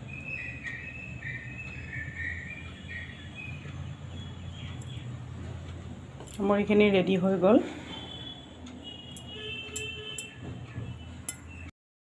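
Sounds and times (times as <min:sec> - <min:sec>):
bird chirping: 0:00.0 - 0:05.3.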